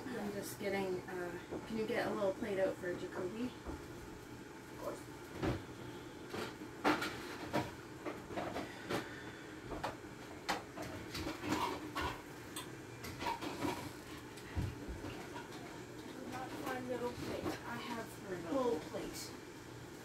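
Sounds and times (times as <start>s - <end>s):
utensil scraping a frying pan: 11.1s - 12.3s, 13.0s - 14.2s.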